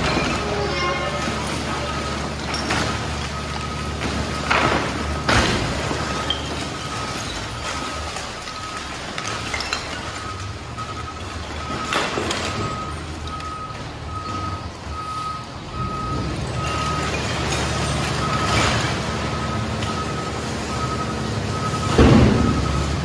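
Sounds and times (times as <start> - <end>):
trash sliding out: 0.0 - 13.0
backup alarm beeping: 0.0 - 23.0
garbage truck engine running: 0.0 - 23.0.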